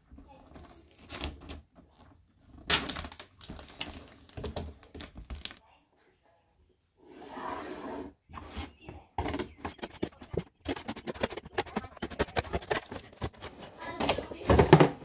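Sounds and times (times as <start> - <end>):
pen scratching on cardboard: 9.5 - 13.7
scissors cutting cardboard: 9.6 - 13.6.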